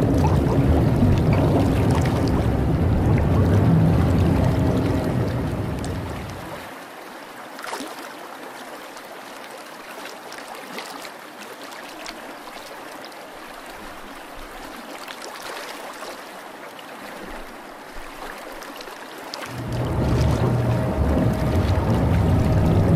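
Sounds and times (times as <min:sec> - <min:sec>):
low rumble: 0:00.0 - 0:06.6, 0:19.5 - 0:22.9
water trickling and gurgling: 0:00.0 - 0:22.9.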